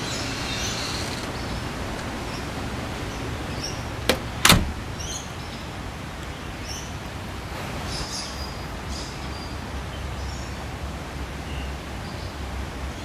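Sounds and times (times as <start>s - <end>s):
low background noise: 0.0s - 13.0s
sharp knocks: 4.1s - 4.9s.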